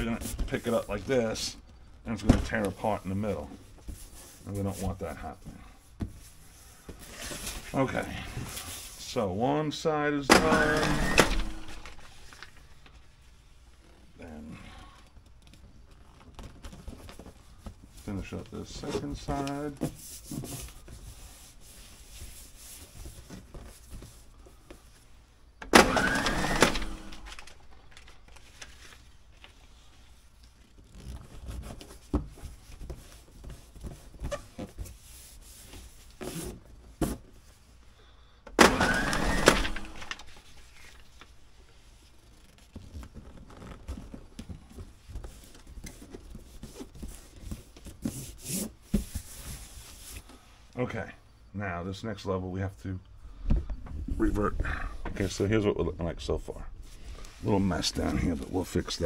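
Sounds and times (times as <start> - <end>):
hands rubbing tape on cardboard: 15.3 - 25.1, 28.6 - 37.7, 40.3 - 50.5
packing tape pulled and torn: 25.8 - 29.6, 30.4 - 31.9, 42.1 - 44.3.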